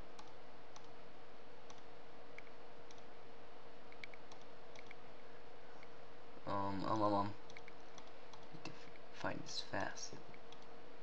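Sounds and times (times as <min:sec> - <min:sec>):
background hum and hiss: 0:00.0 - 0:11.0
computer mouse clicking: 0:00.1 - 0:01.0, 0:01.6 - 0:03.1, 0:03.9 - 0:05.0, 0:07.4 - 0:09.0, 0:10.3 - 0:10.7.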